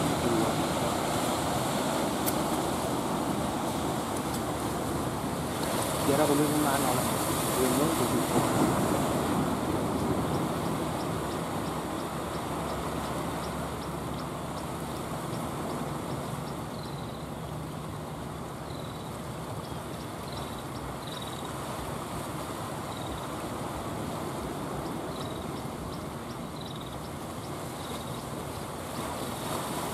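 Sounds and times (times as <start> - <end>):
boat engine drone: 0.0 - 18.9
sea surf: 0.0 - 29.9.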